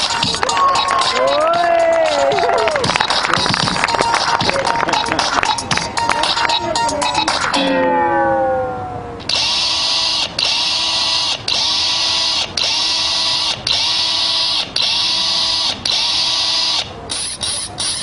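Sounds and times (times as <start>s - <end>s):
electronic dance music: 0.0s - 7.8s.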